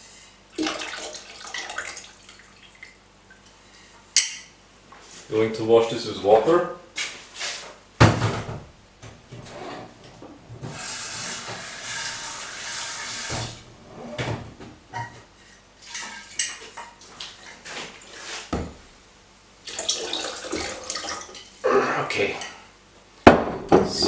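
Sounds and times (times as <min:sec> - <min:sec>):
tap water running: 0:00.6 - 0:03.0, 0:10.6 - 0:13.6, 0:19.6 - 0:21.6.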